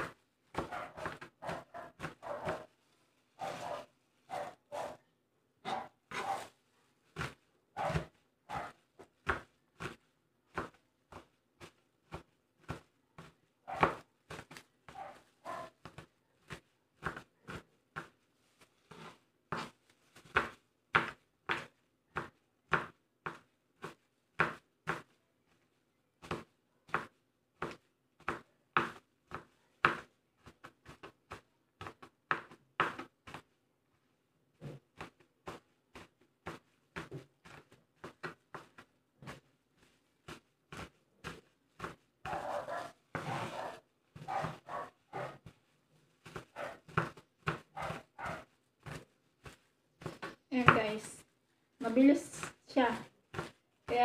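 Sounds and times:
knife chopping on cutting board: 0:00.0 - 0:02.7, 0:07.2 - 0:11.2, 0:18.9 - 0:25.1, 0:40.3 - 0:45.5, 0:46.2 - 0:51.0, 0:52.8 - 0:54.0.

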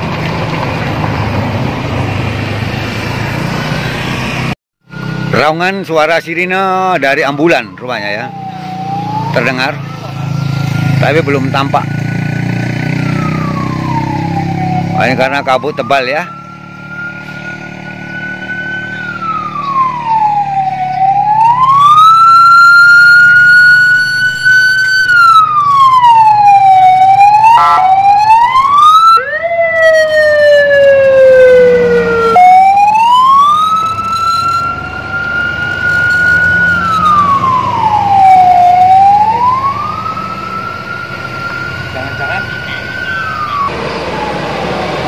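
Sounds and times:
ambulance siren wailing: 0:03.0 - 0:45.0
low engine hum: 0:29.4 - 0:45.0.

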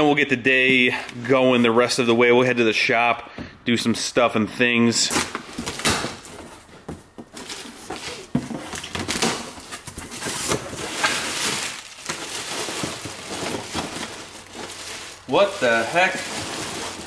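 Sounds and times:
cardboard flaps rustling: 0:05.2 - 0:17.0
packing tape tearing: 0:07.4 - 0:17.0.

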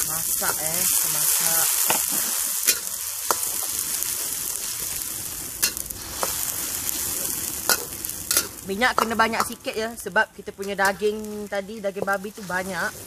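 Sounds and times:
metal spatula scraping wok: 0:00.0 - 0:09.9
spice paste sizzling in oil: 0:00.0 - 0:13.0.

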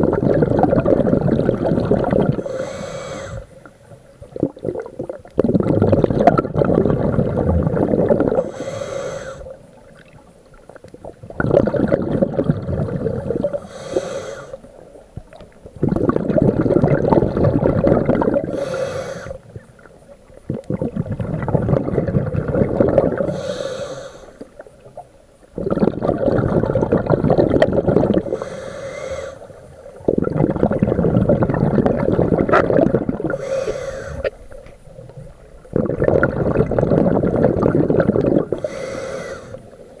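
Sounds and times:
exhaled bubbles gushing: 0:00.0 - 0:14.6, 0:15.2 - 0:23.7, 0:24.4 - 0:40.0
regulator hissing inhale: 0:02.4 - 0:03.7, 0:08.4 - 0:09.6, 0:13.5 - 0:14.8, 0:18.4 - 0:19.5, 0:23.2 - 0:24.6, 0:28.2 - 0:29.9, 0:33.3 - 0:34.4, 0:38.5 - 0:39.9.

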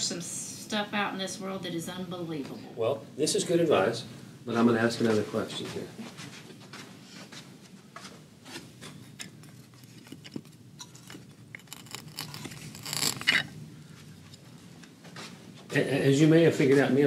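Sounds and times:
moulding samples clicking and scraping: 0:08.8 - 0:13.5.

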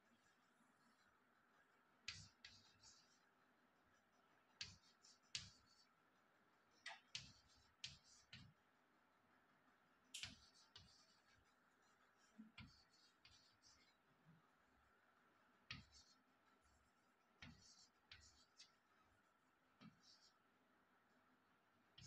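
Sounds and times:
chalk tapping on blackboard: 0:02.1 - 0:03.2, 0:04.6 - 0:05.9, 0:06.9 - 0:08.6, 0:10.2 - 0:11.5, 0:12.4 - 0:13.9, 0:15.7 - 0:16.2, 0:17.4 - 0:18.8.

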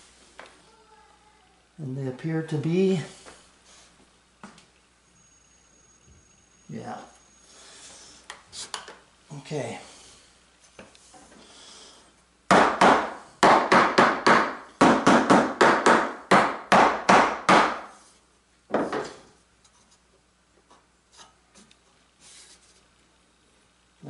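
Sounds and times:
mallet knocking on plywood: 0:12.5 - 0:17.9.

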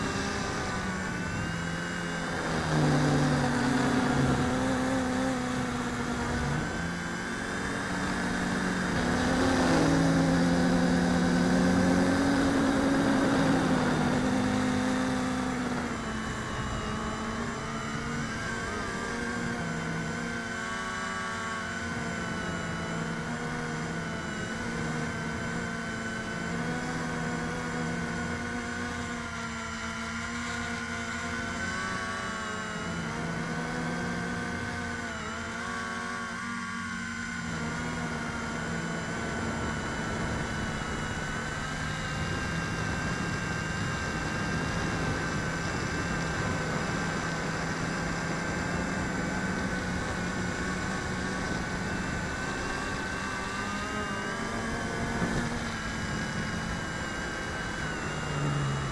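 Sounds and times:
quadcopter propellers whirring: 0:00.0 - 0:58.9.

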